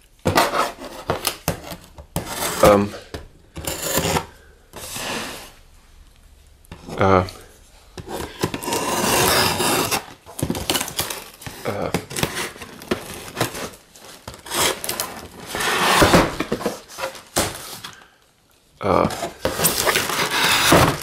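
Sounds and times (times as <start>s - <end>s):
cardboard flaps scraping and rustling: 8.0s - 18.0s, 19.0s - 21.0s
knife slitting packing tape: 8.1s - 11.4s, 14.4s - 16.3s, 19.5s - 21.0s.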